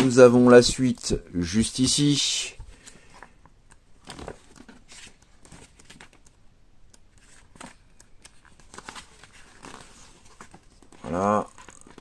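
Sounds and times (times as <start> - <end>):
magazine pages rustling: 4.0 - 6.3, 7.1 - 12.0.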